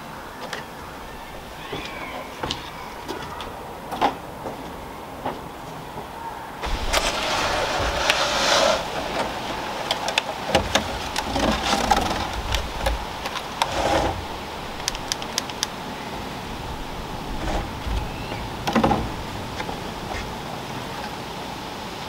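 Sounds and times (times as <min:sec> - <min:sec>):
plastic tray rustling and crackling: 0:06.6 - 0:15.8
sharp clicks: 0:14.8 - 0:15.8.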